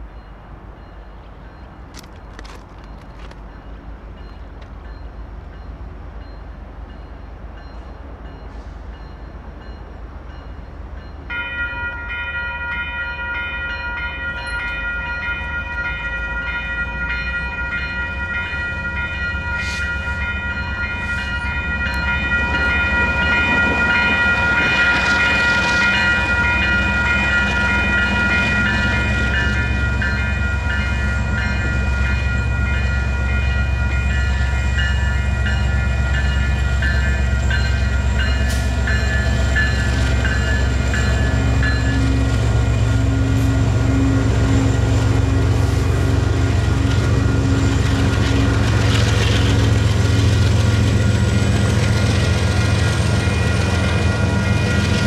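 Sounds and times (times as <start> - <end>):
railroad crossing bells ringing: 0.0 - 55.0
diesel locomotive rumble: 13.1 - 55.0.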